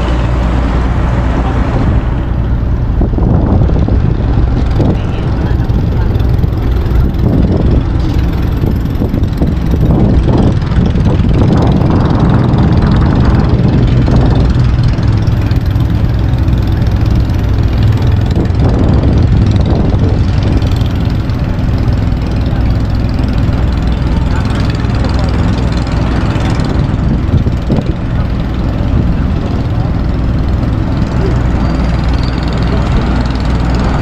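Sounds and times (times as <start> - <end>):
ship engines droning: 0.0 - 34.0.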